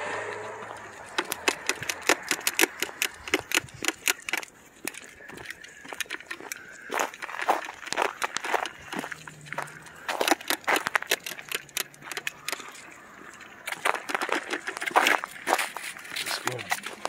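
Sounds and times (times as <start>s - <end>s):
low hum: 0.0s - 16.1s
footsteps crunching on snow and ice: 0.0s - 17.0s.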